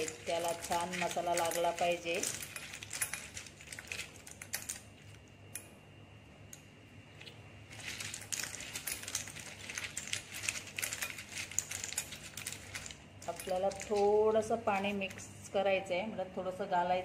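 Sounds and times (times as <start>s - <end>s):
clam shells clattering in glass bowl: 0.0s - 4.9s, 7.7s - 15.2s.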